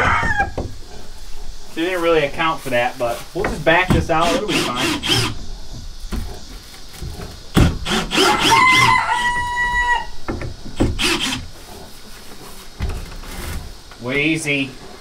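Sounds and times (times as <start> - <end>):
rooster crowing: 0.0 - 0.7, 8.1 - 10.2
wood rubbing and scraping: 0.0 - 15.0.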